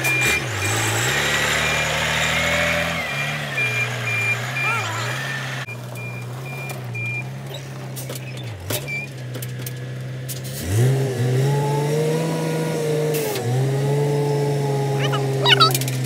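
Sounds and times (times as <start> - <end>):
truck engine running and revving: 0.0 - 16.0
reverse alarm beeps: 2.2 - 7.2.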